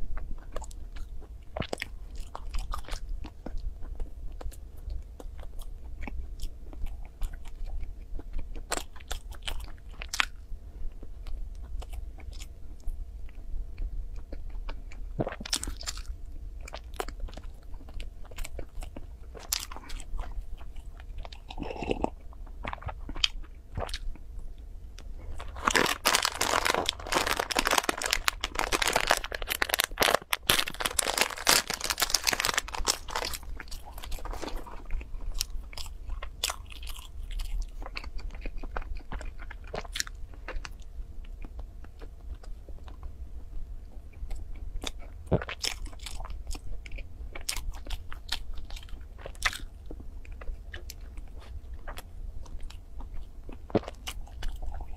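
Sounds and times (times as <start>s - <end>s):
biting and chewing bun: 0.0s - 54.9s
crust crackling: 25.0s - 38.0s.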